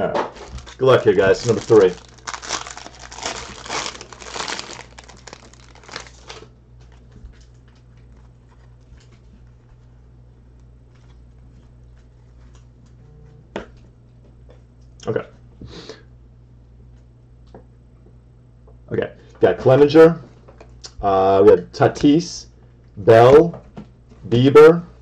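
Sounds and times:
plastic wrapper crinkling: 0.4s - 9.8s.

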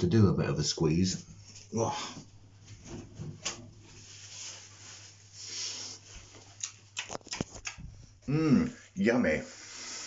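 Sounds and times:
breathy rubbing noises: 3.9s - 6.5s.

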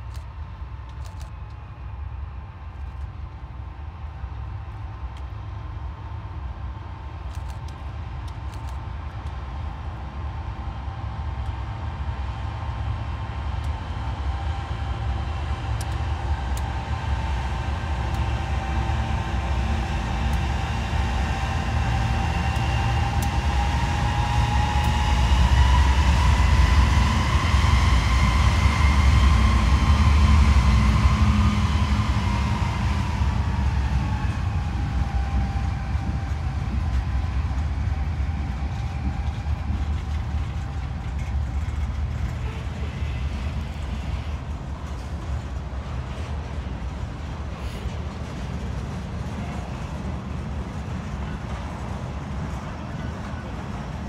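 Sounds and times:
diesel locomotive engines rumbling: 0.0s - 54.0s
freight cars rolling past: 10.8s - 54.0s.

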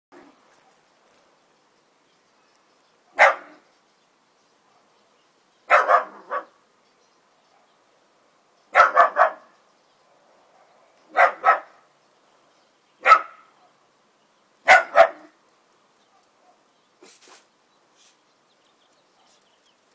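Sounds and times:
dog barking: 3.1s - 3.6s, 5.7s - 6.6s, 8.7s - 9.5s, 10.5s - 11.8s, 13.0s - 13.8s, 14.6s - 15.4s, 16.1s - 16.6s.

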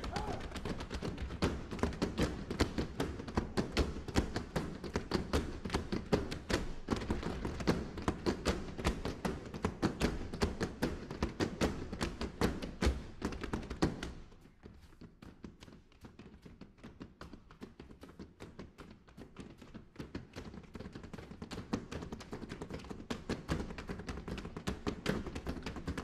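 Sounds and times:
brooms striking stage floor: 0.0s - 14.3s.

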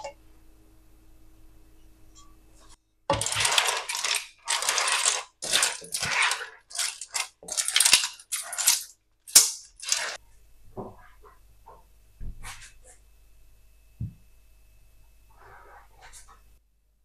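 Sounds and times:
clam shells clattering in a pan: 3.1s - 10.2s.

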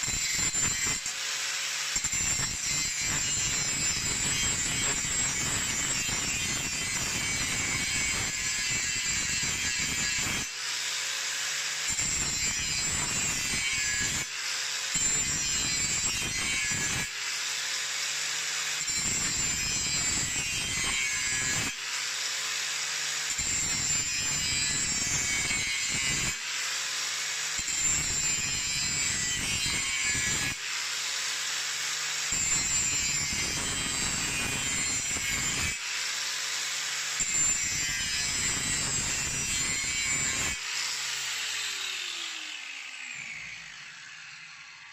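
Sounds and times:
angle grinder grinding steel: 0.0s - 44.9s.

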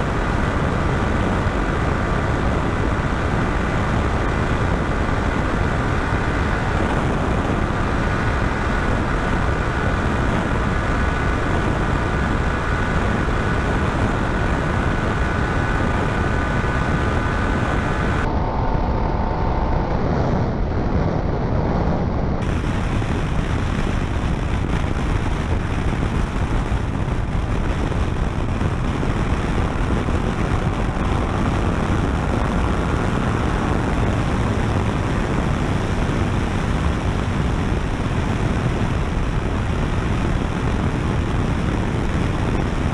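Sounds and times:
wind roar on microphone: 0.0s - 42.9s
motorcycle engine at high revs: 22.4s - 42.9s.

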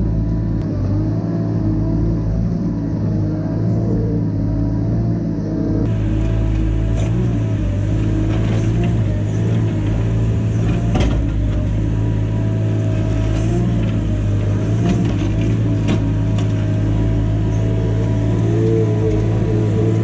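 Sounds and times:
diesel engine running under load: 0.0s - 20.0s.

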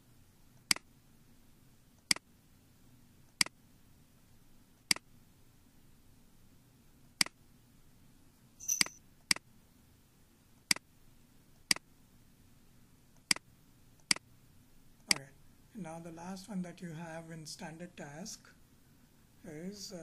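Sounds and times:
computer mouse clicks: 3.3s - 3.6s, 4.9s - 5.1s, 13.2s - 14.2s.

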